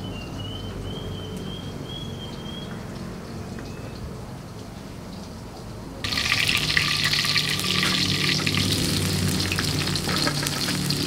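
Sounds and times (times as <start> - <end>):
food sizzling in hot oil: 6.0 - 11.0.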